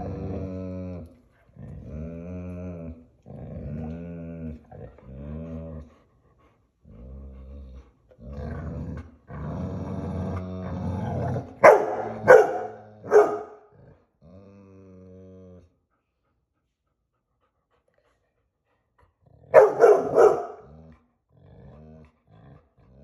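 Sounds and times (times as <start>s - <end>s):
dogs play-growling: 0.0s - 15.8s, 19.0s - 23.0s
sharp dog barks: 11.6s - 13.6s, 19.6s - 20.6s.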